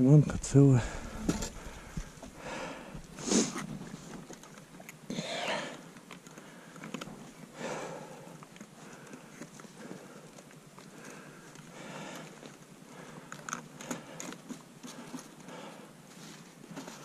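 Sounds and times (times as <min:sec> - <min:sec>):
man breathing hard: 0:00.8 - 0:03.6, 0:07.5 - 0:16.0.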